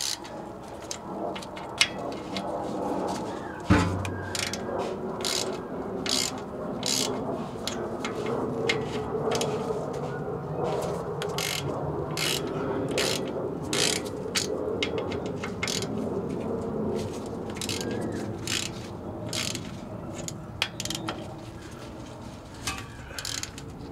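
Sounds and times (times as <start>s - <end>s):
ratchet wrench clicking: 0.0s - 0.2s, 4.3s - 4.6s, 5.2s - 7.2s, 11.4s - 11.6s, 12.2s - 15.9s, 17.6s - 19.6s, 20.2s - 21.0s, 23.2s - 23.6s.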